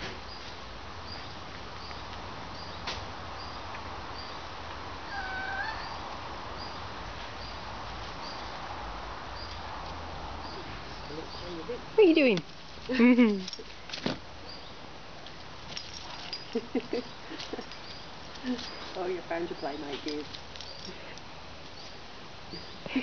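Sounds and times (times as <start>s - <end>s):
dog whining: 5.1s - 6.0s.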